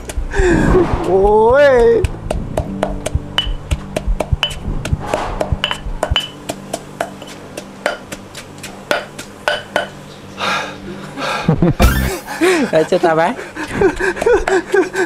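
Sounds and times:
pestle pounding in a mortar: 0:00.0 - 0:10.0, 0:13.9 - 0:14.9.

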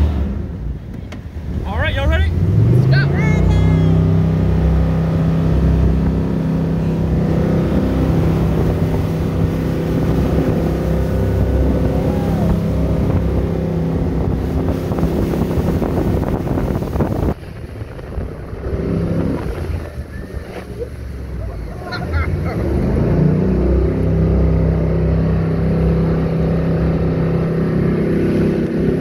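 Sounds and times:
boat engine running at speed: 0:00.0 - 0:29.0
wind rushing: 0:05.2 - 0:21.3.

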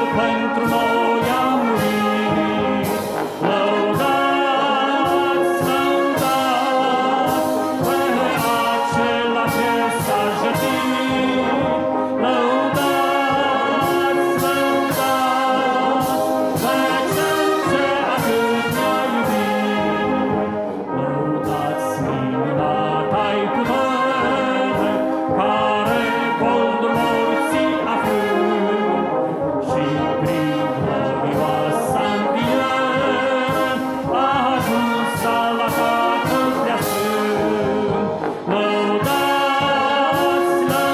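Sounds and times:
brass band playing a hymn: 0:00.0 - 0:40.9
drum kit: 0:00.0 - 0:40.9.

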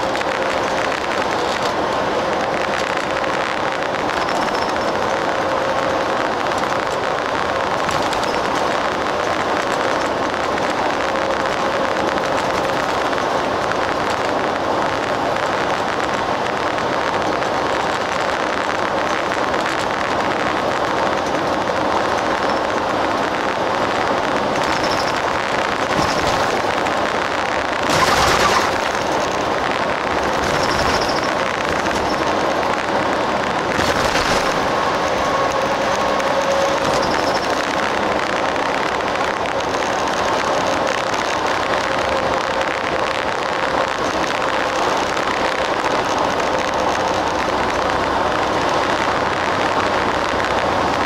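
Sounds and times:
bus engine drone: 0:00.0 - 0:51.0
tyre and road noise: 0:00.0 - 0:51.0.

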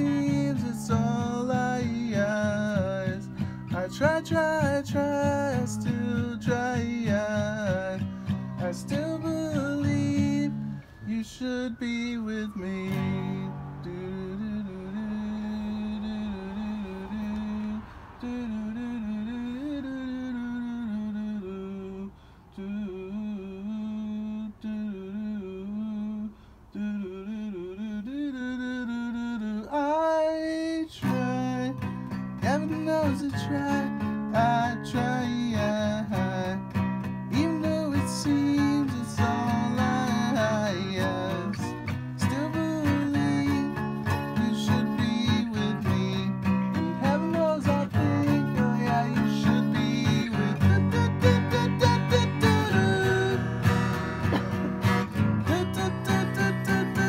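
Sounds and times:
acoustic guitar strumming: 0:00.0 - 0:23.2, 0:28.8 - 0:57.0
man singing: 0:00.0 - 0:57.0
man humming: 0:50.6 - 0:57.0.

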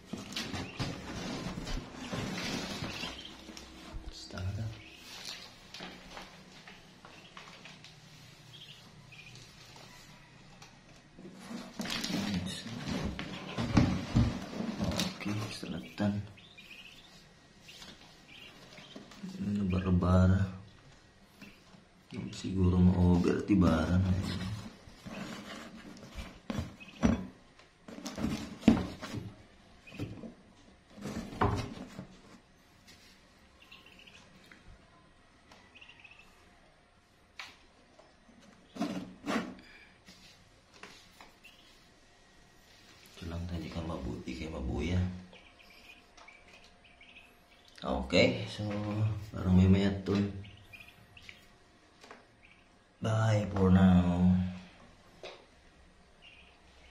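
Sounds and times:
ducklings peeping: 0:00.1 - 0:10.4, 0:11.6 - 0:20.5, 0:21.3 - 0:27.3, 0:27.9 - 0:30.4, 0:32.7 - 0:34.6, 0:35.5 - 0:36.5, 0:41.0 - 0:54.6, 0:56.0 - 0:56.9.

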